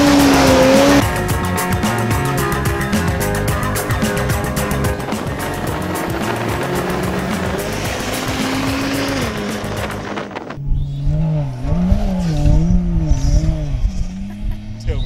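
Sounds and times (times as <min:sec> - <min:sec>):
engine revving hard: 0:00.0 - 0:01.0, 0:04.6 - 0:10.2, 0:10.8 - 0:15.0
music: 0:00.0 - 0:10.4.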